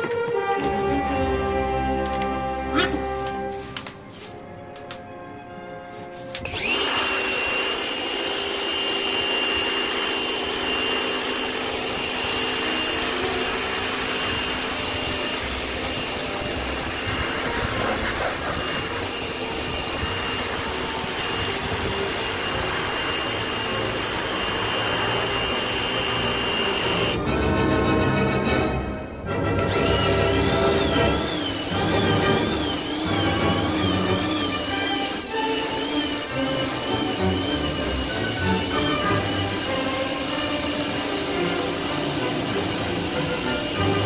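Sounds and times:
pressure washer spraying plastic: 0:01.7 - 0:05.0, 0:06.0 - 0:27.2, 0:29.6 - 0:44.0
pressure washer high whine: 0:06.4 - 0:27.2, 0:29.6 - 0:44.0.

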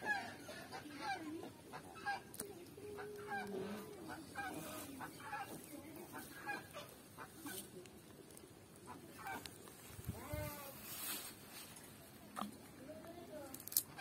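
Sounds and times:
fowl honking and clucking: 0:00.0 - 0:02.3, 0:02.9 - 0:07.7, 0:08.8 - 0:09.6.

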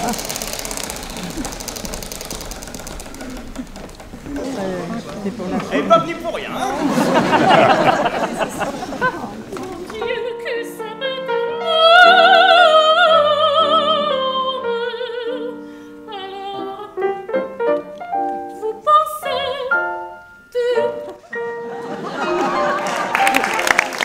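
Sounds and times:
grand piano: 0:00.0 - 0:24.0
soprano singing operatically: 0:09.5 - 0:17.3, 0:18.4 - 0:21.4.

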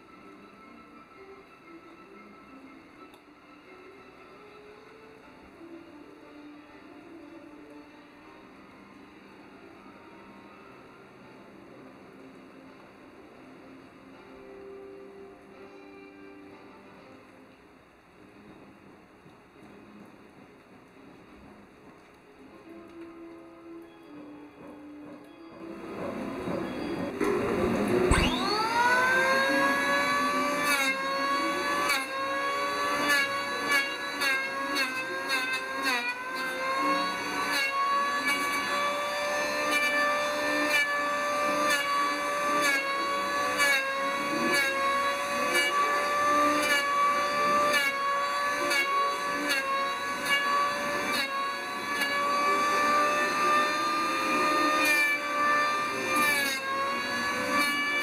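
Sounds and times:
electric planer whining: 0:25.6 - 0:58.0
planer blades cutting wood: 0:25.8 - 0:58.0.

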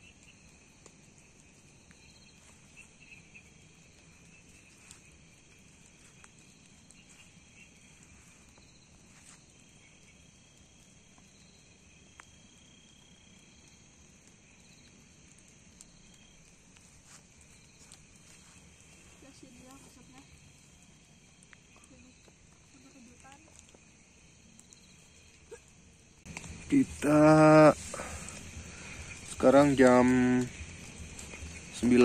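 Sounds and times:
high insect trill: 0:00.0 - 0:32.0
night insects chirring: 0:00.0 - 0:32.0
soft ticks: 0:21.3 - 0:23.9.

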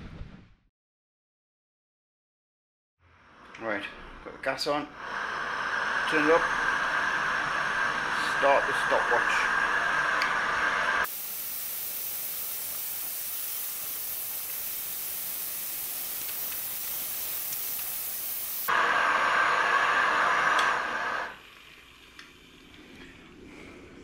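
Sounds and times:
gas stove burner hissing: 0:04.9 - 0:23.8
burner roar: 0:05.0 - 0:11.3, 0:16.4 - 0:21.4.

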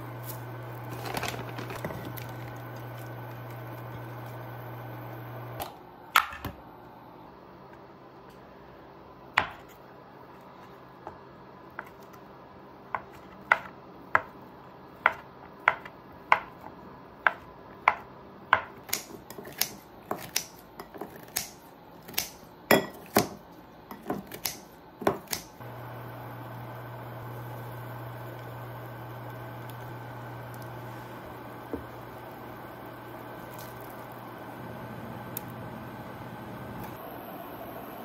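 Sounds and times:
steady low hum: 0:00.0 - 0:11.6, 0:24.8 - 0:38.0.

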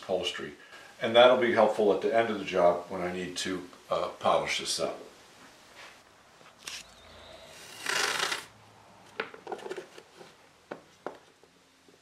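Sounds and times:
tape pulled off roll: 0:07.5 - 0:08.5.

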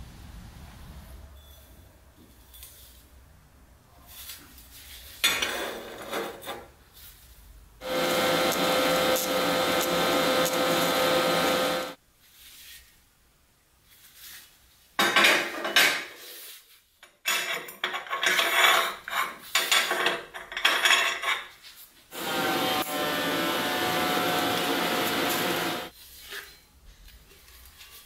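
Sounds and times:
steady machine noise: 0:07.8 - 0:12.0, 0:22.1 - 0:25.9.

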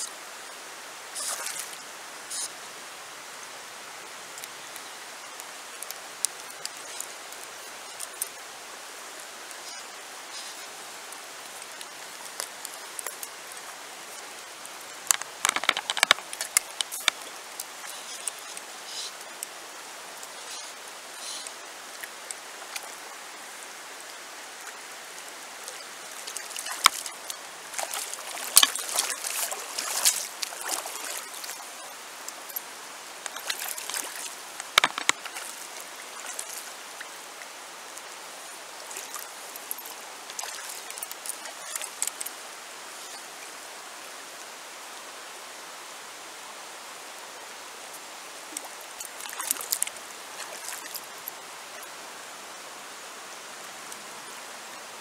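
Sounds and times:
river water over stones: 0:00.0 - 0:55.0
water splashing: 0:15.0 - 0:19.1, 0:24.5 - 0:37.3, 0:38.0 - 0:42.3, 0:48.5 - 0:51.9.

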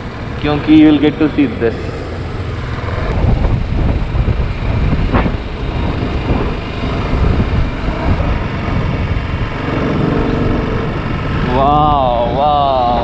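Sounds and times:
motorcycle engine: 0:00.0 - 0:13.0
wind rushing over microphone: 0:00.0 - 0:13.0.

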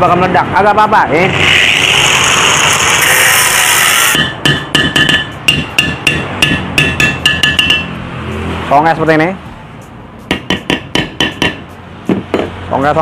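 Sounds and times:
angle grinder cutting steel: 0:01.2 - 0:06.6.

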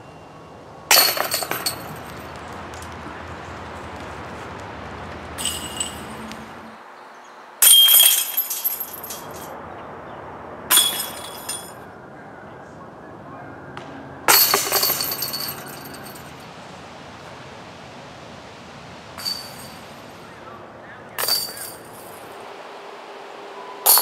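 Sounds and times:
metal chains clashing and jingling: 0:00.9 - 0:02.3, 0:05.4 - 0:06.3, 0:07.6 - 0:09.6, 0:10.7 - 0:11.8, 0:14.3 - 0:16.4, 0:19.2 - 0:20.1, 0:21.2 - 0:22.4.

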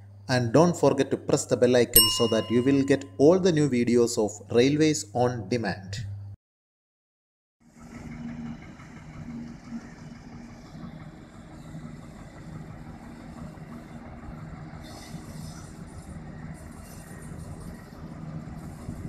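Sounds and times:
diesel locomotive engine humming: 0:07.7 - 0:19.0.

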